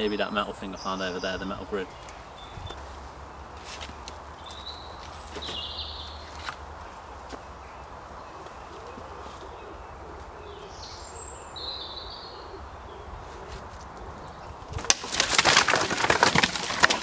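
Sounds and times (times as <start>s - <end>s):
bird chirping: 0.0s - 14.8s
wooden branches cracking and clattering: 13.5s - 17.0s.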